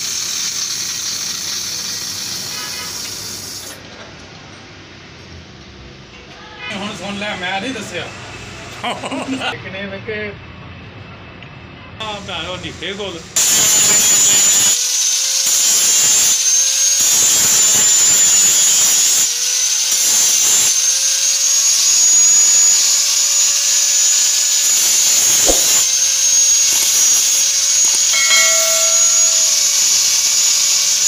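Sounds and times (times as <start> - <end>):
angle grinder grinding metal: 13.4 - 31.0.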